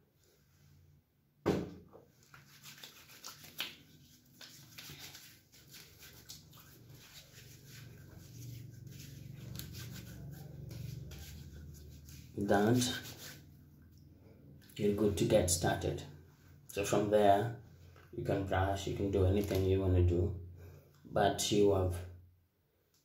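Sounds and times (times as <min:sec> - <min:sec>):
hands rubbing: 0:02.2 - 0:13.5.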